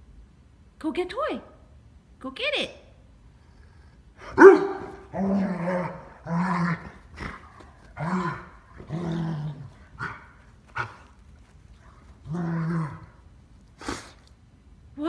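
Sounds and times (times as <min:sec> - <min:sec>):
dog growling woofs: 0:04.2 - 0:11.2, 0:11.8 - 0:14.1.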